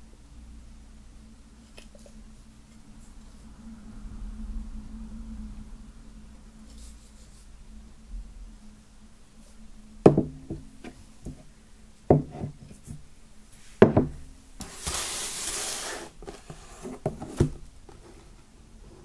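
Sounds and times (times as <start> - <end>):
hollow knocks on wooden table: 10.1 - 11.4, 12.1 - 12.5, 13.8 - 14.2
tankard sliding into cardboard box: 14.6 - 17.6.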